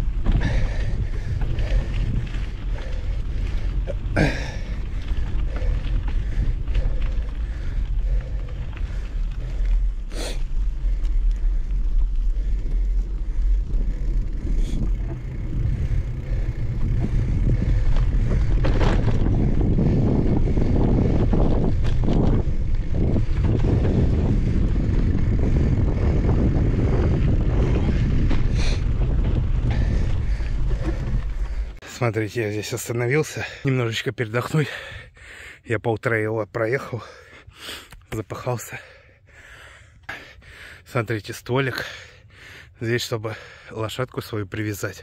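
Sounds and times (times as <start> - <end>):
bike clicks and rattles: 0.0 - 31.8
wind on microphone: 0.0 - 31.8
bike tyre noise: 0.0 - 31.9.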